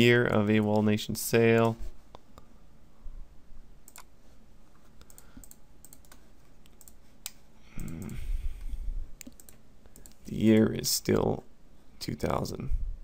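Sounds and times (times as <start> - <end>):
computer mouse clicks: 3.8 - 4.1, 5.0 - 8.2, 9.2 - 10.7.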